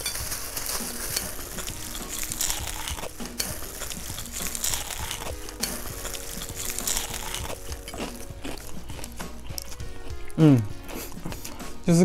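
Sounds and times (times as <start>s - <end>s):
simple background melody: 0.0s - 12.0s
crunching bites into fried chicken: 0.9s - 9.9s.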